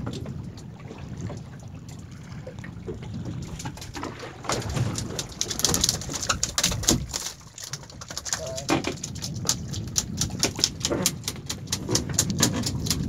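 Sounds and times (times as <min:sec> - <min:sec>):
wind and water wash: 0:00.0 - 0:13.0
fish tail beating on floor: 0:03.5 - 0:13.0.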